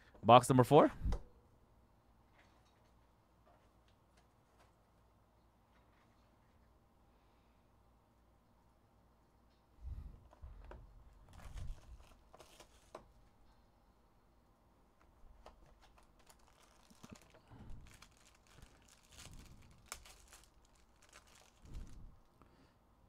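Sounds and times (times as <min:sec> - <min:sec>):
packaging crinkling: 0:11.3 - 0:13.0, 0:15.3 - 0:22.2.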